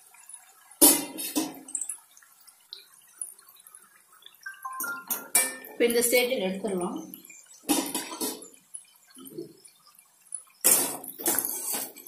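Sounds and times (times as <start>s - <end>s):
oil frying: 0.0s - 12.0s
metal utensils scraping in a pan: 0.8s - 1.7s, 5.1s - 6.1s, 7.6s - 8.6s, 10.6s - 12.0s.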